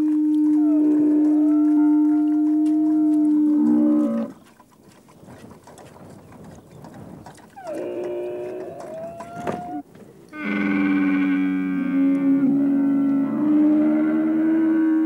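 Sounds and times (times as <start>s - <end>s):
camels calling: 7.6s - 15.0s.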